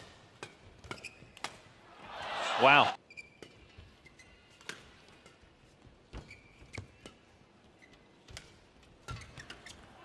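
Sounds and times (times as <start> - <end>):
shoe squeak on court: 0.9 - 1.4, 3.1 - 4.4, 6.2 - 7.0.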